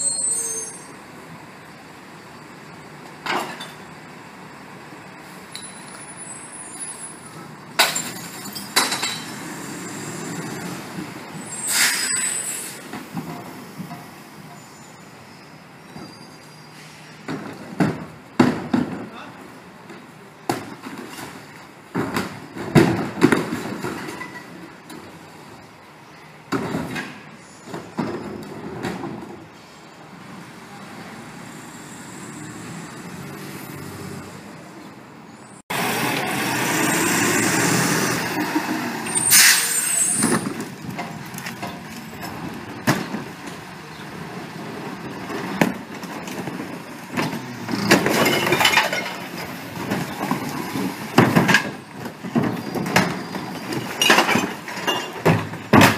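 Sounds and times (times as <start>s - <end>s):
short hiss: 11.6s - 12.9s
carts knocking and clunking: 17.2s - 25.3s, 26.4s - 29.4s, 40.1s - 55.9s.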